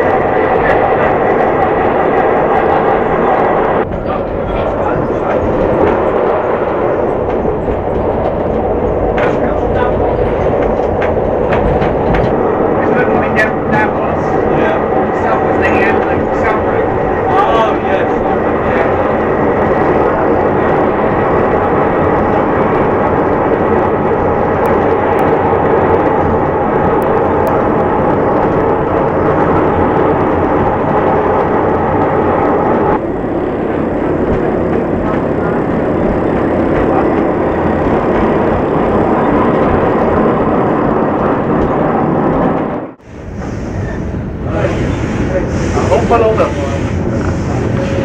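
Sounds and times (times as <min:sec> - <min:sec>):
rushing air: 0:00.0 - 0:48.0
train wheels rumbling on rail: 0:00.0 - 0:48.0.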